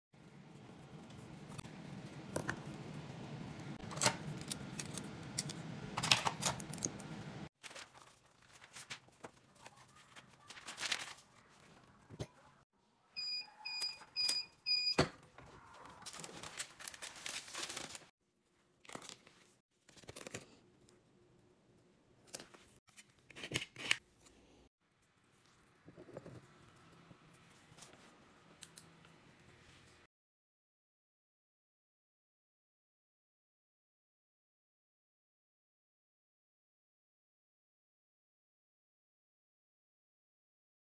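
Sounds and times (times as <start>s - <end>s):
heat press controller beeps: 13.2s - 15.1s.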